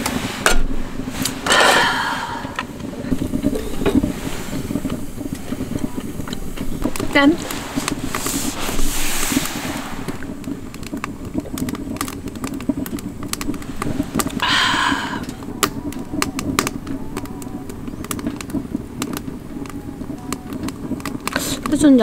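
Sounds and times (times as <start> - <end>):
breathy rush of noise: 0.0 - 21.7
steady low hum: 0.0 - 22.0
wood fire crackling and popping: 0.0 - 22.0.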